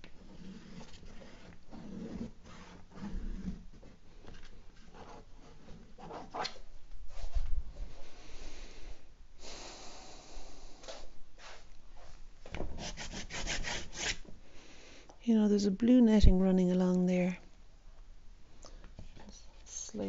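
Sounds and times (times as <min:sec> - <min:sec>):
pastel scratching on paper: 0:12.8 - 0:14.2.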